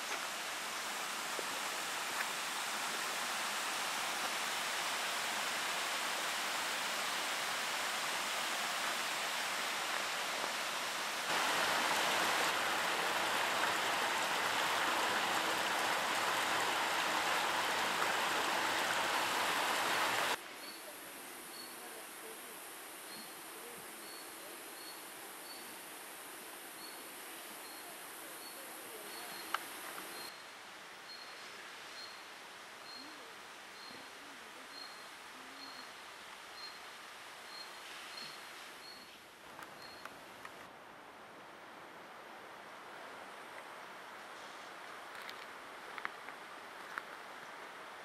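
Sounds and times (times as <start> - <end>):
stream rushing: 0.0 - 20.4.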